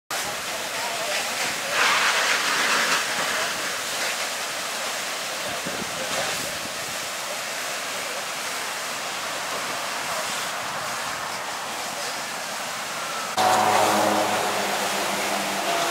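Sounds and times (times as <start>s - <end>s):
fire hose water jet hissing: 0.2s - 15.9s.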